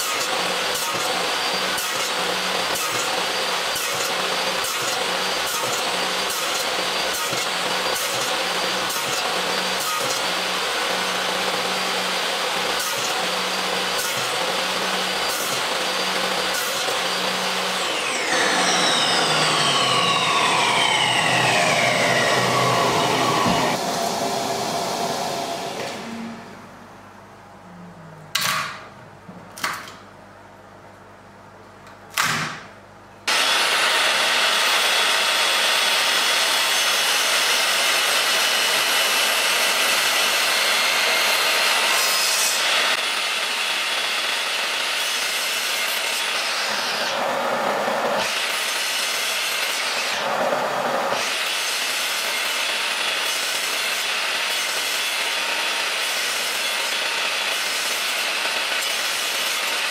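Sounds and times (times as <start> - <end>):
miter saw cutting wood: 0.0 - 26.0, 33.3 - 59.9.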